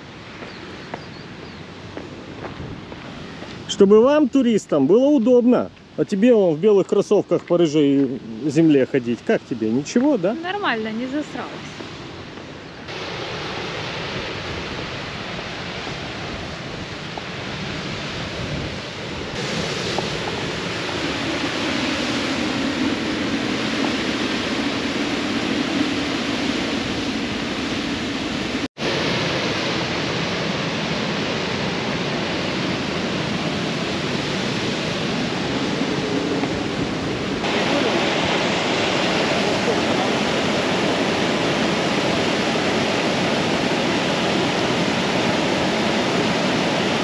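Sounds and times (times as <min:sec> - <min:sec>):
white water rushing: 0:01.6 - 0:47.0.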